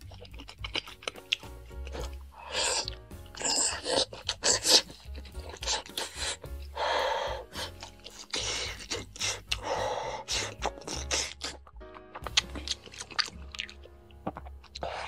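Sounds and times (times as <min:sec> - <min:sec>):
chewing: 0:00.0 - 0:06.7, 0:07.5 - 0:15.0
noodles being slurped: 0:00.0 - 0:06.8, 0:07.4 - 0:15.0
soft background music: 0:00.0 - 0:15.0.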